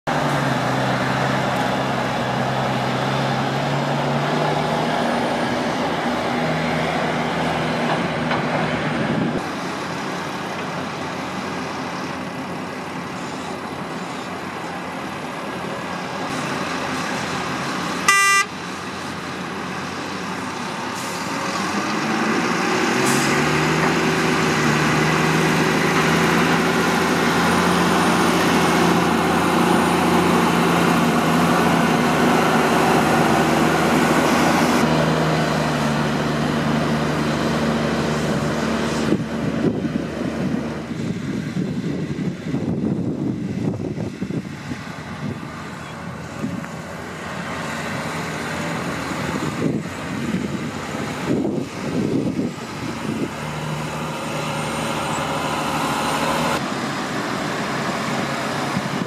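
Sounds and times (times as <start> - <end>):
heavy diesel engines running: 0.0 - 59.0
truck engine revving: 0.0 - 59.0
vehicle horn toot: 18.1 - 18.5.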